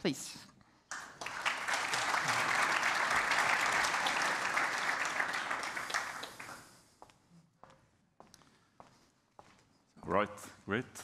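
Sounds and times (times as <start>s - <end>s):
audience applauding: 0.9s - 6.8s.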